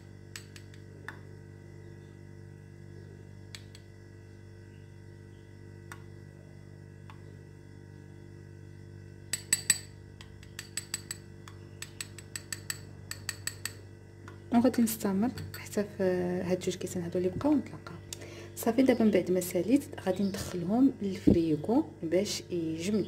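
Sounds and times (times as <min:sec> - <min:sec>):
spoon clinking against glass: 0:09.4 - 0:09.9.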